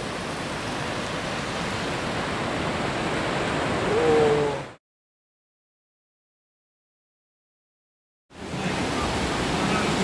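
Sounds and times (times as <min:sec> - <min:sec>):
surf rushing on a beach: 0:00.0 - 0:04.8, 0:08.3 - 0:10.0.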